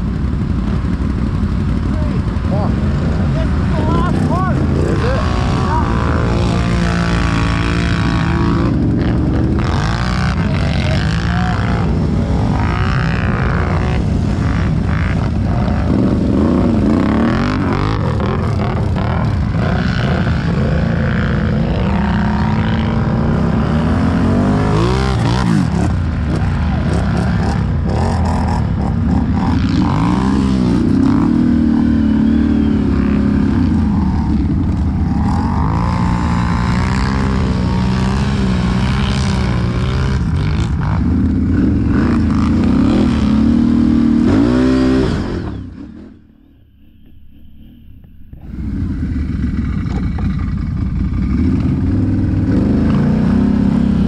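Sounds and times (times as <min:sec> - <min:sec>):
atv engines revving: 0:00.0 - 0:54.0.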